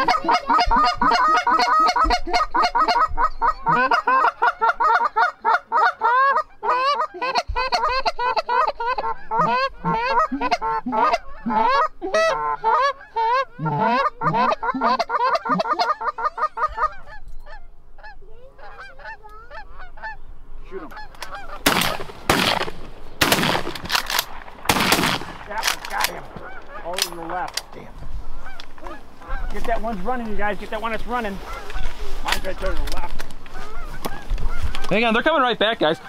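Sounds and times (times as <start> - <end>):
geese honking: 0.0 - 36.0
loud bangs: 21.6 - 27.8.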